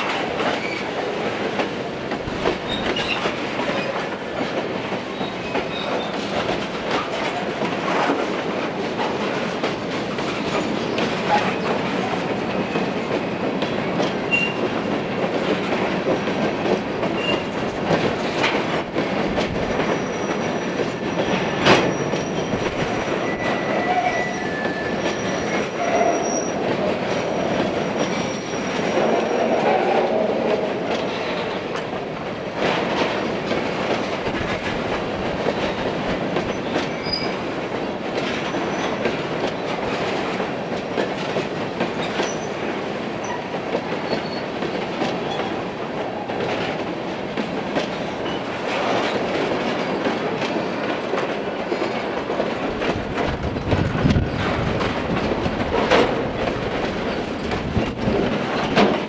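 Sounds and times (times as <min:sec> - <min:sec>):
freight train wheels rumbling: 0:00.0 - 0:59.0
thin high wheel squeals: 0:21.8 - 0:26.6.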